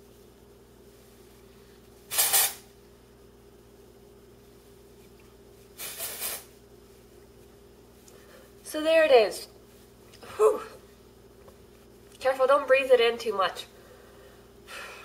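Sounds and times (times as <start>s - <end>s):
aerosol spray hissing: 2.1s - 2.6s, 5.8s - 6.5s.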